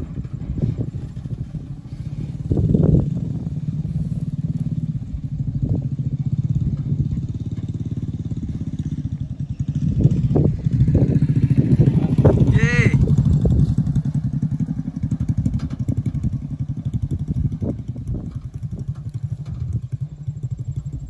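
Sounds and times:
vehicle engine at low revs: 0.0s - 21.0s.

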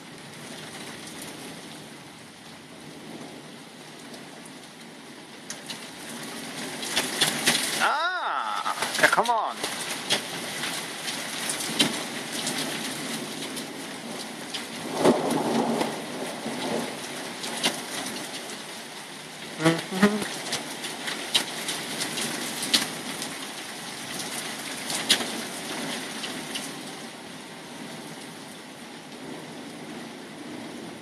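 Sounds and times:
heavy rain hissing: 6.0s - 12.3s, 19.4s - 21.1s
thunder clap and rumble: 8.8s - 18.2s.

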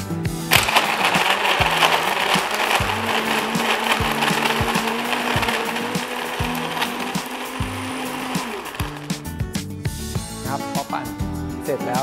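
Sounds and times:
background music with beat: 0.0s - 12.0s
blender crushing ice: 0.4s - 9.4s.

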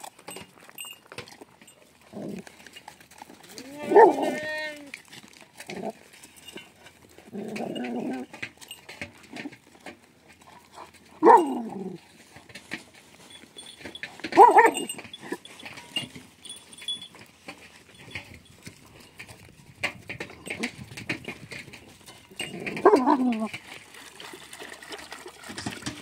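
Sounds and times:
dog barking: 3.8s - 4.4s, 11.2s - 11.6s, 14.4s - 14.9s.

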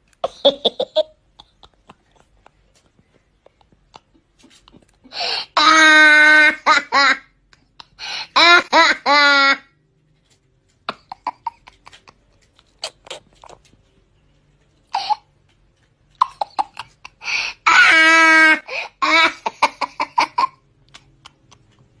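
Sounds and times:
boy laughing: 0.2s - 7.8s, 10.9s - 12.3s, 16.4s - 20.6s.

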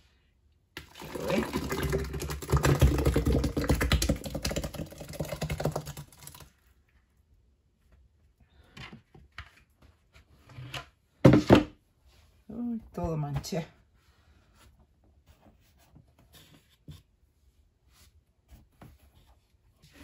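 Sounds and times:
thick liquid gurgling through funnel: 0.8s - 6.5s.

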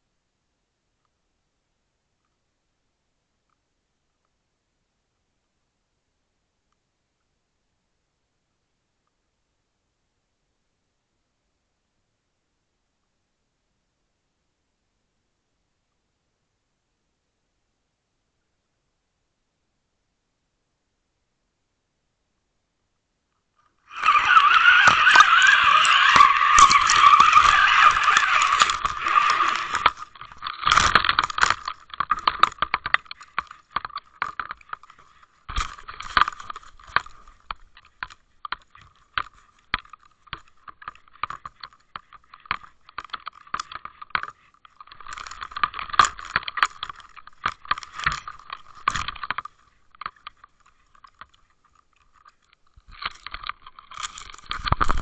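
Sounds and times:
rushing scrape: 23.9s - 38.0s
camera rubbing against clothing: 23.9s - 55.0s.

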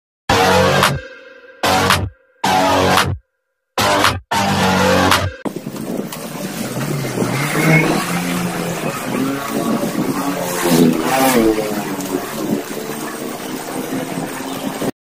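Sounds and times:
road noise: 5.0s - 15.0s
motor vehicles passing: 5.5s - 14.9s.

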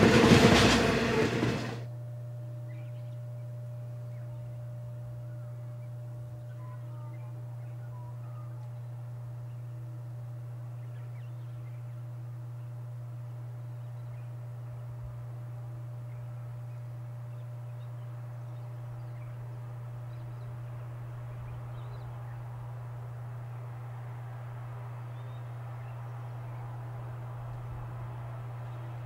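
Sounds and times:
diesel locomotive drone: 0.0s - 29.0s
bird chirps: 2.6s - 9.9s, 16.0s - 22.6s.

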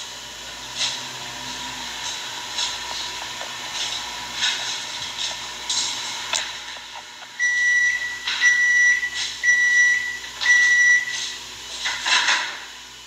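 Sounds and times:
electronic beeps: 7.4s - 11.4s.

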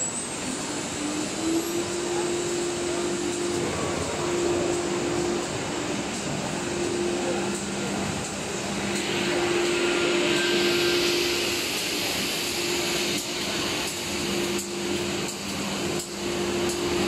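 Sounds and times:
cnc router humming: 0.0s - 17.0s
dust extraction air hiss: 8.5s - 16.6s.

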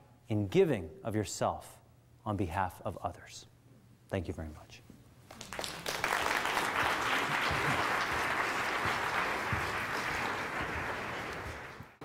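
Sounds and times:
audience applauding: 5.3s - 12.0s.

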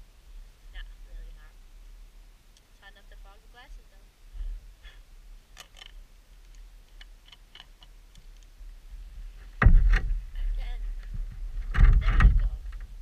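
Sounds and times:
muffled bump: 9.4s - 12.9s.

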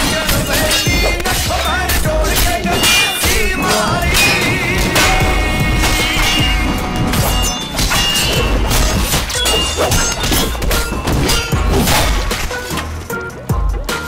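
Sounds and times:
music with heavy bass: 0.0s - 14.0s
crashing impact sound effects: 2.4s - 12.7s.

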